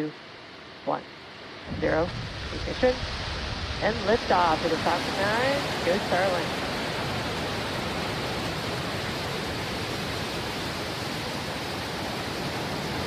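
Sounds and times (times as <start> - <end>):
rocket engines roaring: 1.6 - 9.7.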